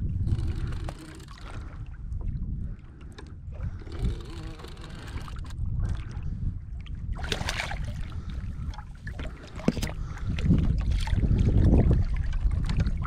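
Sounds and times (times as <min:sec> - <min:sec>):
steady low rumble: 0:00.0 - 0:13.0
fish thrashing splashing water: 0:07.2 - 0:08.2.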